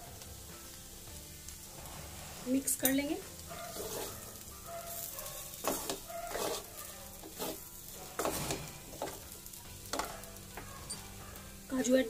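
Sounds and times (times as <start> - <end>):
oil sizzling: 0.0 - 12.0
spatula scraping metal pan: 3.5 - 9.2.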